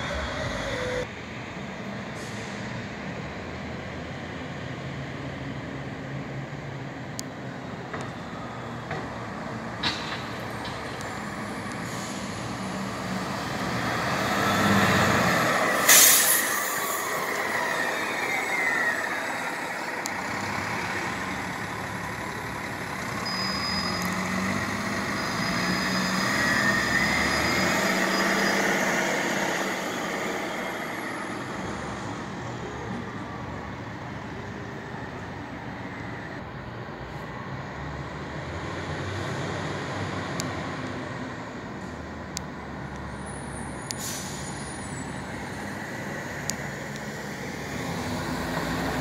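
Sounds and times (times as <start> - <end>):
bus driving past: 0.0 - 49.0
sharp hiss of air: 15.7 - 17.3, 44.0 - 44.7.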